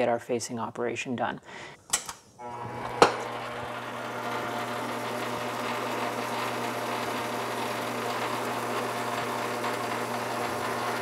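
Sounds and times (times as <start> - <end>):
lathe motor and gear hum: 2.5 - 11.0.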